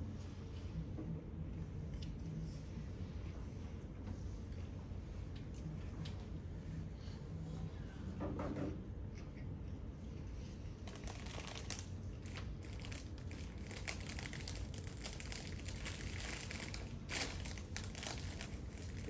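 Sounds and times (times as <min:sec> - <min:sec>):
low room hum: 0:00.0 - 0:19.0
packaging rustling and crinkling: 0:10.8 - 0:19.0.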